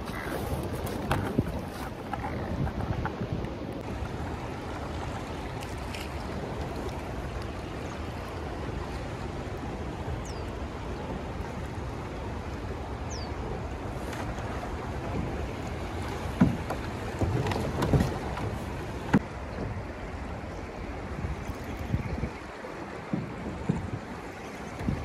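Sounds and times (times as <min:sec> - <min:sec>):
wind on microphone: 0:00.0 - 0:05.5, 0:20.9 - 0:25.0.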